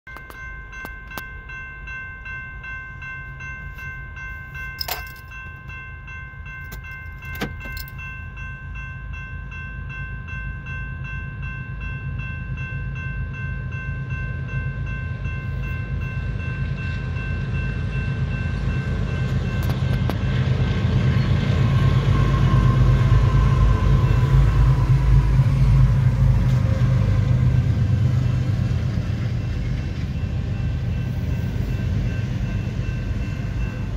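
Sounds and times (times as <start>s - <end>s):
crossing warning bell ringing: 0.1s - 33.9s
freight train rumble: 0.1s - 33.9s.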